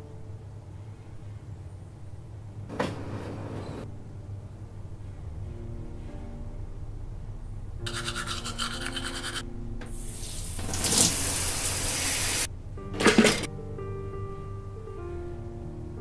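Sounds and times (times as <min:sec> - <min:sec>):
buzzing rasp: 0:07.9 - 0:09.4
shower water hissing: 0:08.2 - 0:12.5.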